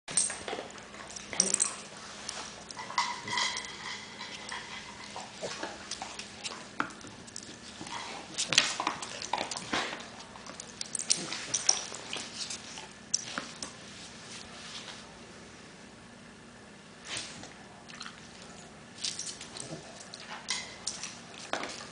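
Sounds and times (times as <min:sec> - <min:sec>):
dog claws clicking on floor: 0:00.1 - 0:13.8, 0:18.0 - 0:21.9.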